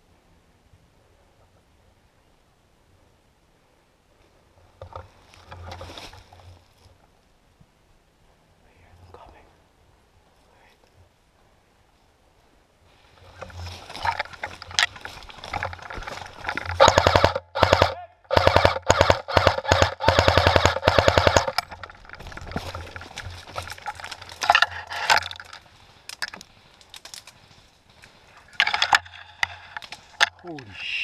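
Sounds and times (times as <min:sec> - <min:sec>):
airsoft gun firing bursts: 0:16.8 - 0:21.6.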